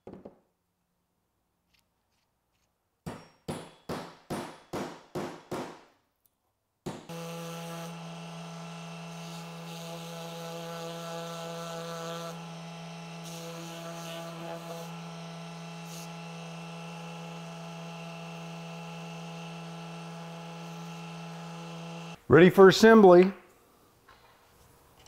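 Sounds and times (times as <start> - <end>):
power tool running with hum: 7.1 - 22.2.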